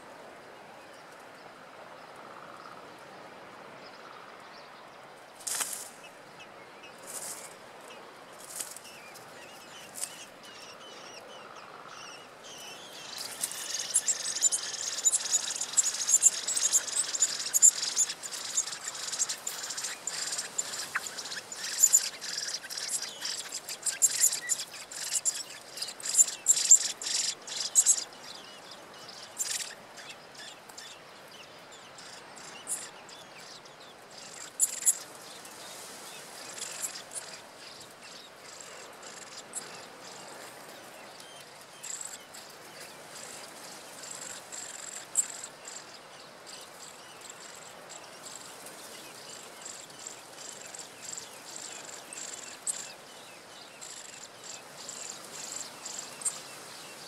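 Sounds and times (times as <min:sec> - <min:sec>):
nestlings begging chirps: 0:12.0 - 0:30.9, 0:34.2 - 0:35.0, 0:49.3 - 0:52.9, 0:53.8 - 0:56.5.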